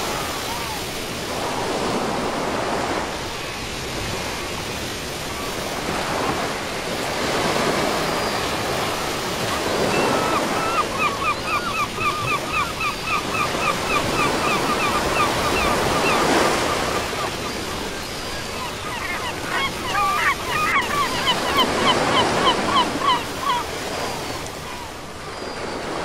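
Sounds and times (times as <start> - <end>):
small waves breaking on sand: 0.0 - 26.0
gull calling rapidly: 18.6 - 23.7.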